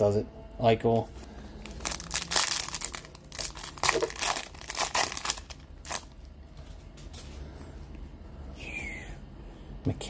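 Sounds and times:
card wrapper crinkling: 1.3 - 6.2.

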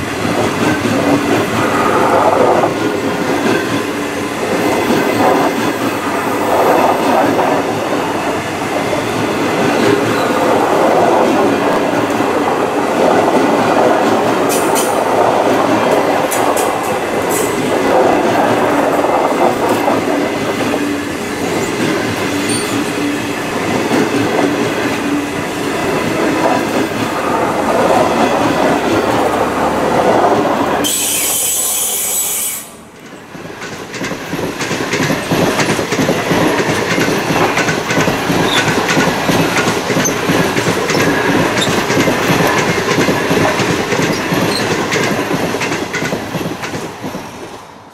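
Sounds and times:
train wheels rumbling on rail: 0.0 - 47.9
loud hiss: 30.8 - 32.8.

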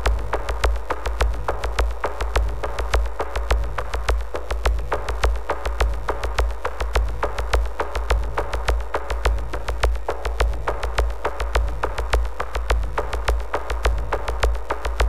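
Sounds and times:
drum machine clicks: 0.0 - 15.0
deep pulsing bass: 11.6 - 15.0.

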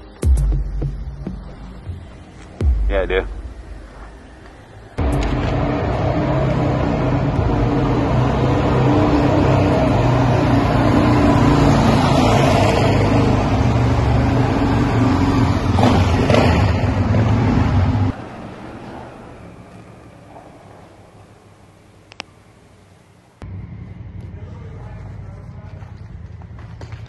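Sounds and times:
motorcycle engine echoing in tunnel: 3.8 - 21.6, 23.4 - 27.0.

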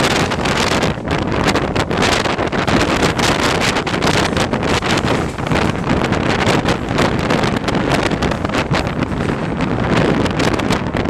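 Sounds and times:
train wheels rumbling on rails: 0.0 - 11.0
wind buffeting microphone: 0.0 - 11.0.

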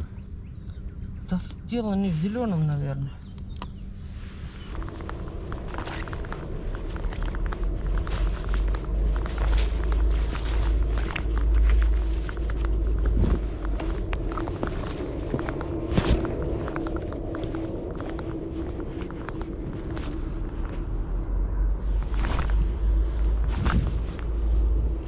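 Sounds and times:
steady low hum: 0.0 - 25.0
wind rumble on microphone: 0.0 - 25.0
clothing rustling on camera: 3.8 - 25.0
footsteps on grass: 3.9 - 21.2.

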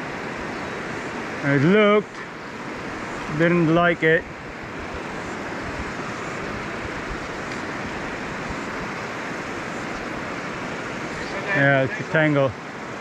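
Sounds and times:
river rushing: 0.0 - 13.0.

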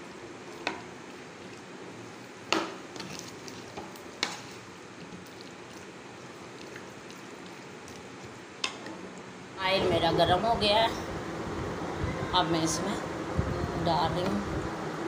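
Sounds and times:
spoon stirring thick batter: 0.1 - 9.3.

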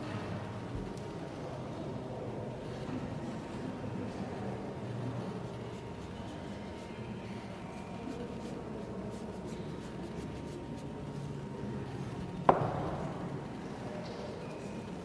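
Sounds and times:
sharp knock on table: 12.5 - 12.9.

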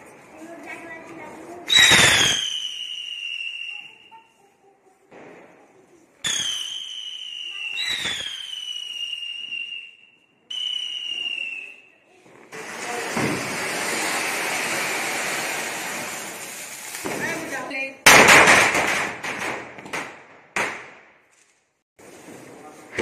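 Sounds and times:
whistling firework: 1.7 - 4.3, 6.2 - 17.5
fountain firework hissing: 12.5 - 17.8.

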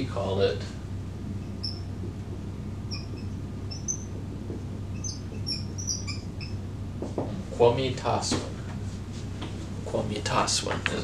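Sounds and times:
low room hum: 0.0 - 11.0
marker squeaking on whiteboard: 1.3 - 6.7.

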